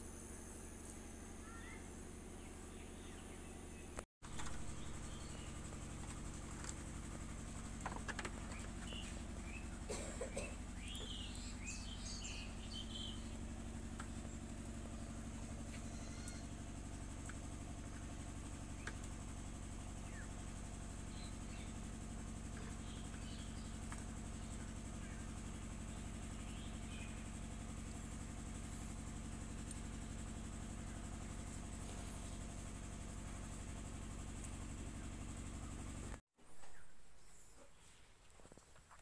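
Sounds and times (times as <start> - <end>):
low mechanical hum: 0.0 - 39.0
faint bird chirps: 0.8 - 5.7, 8.4 - 16.8, 21.0 - 27.7, 36.6 - 38.2.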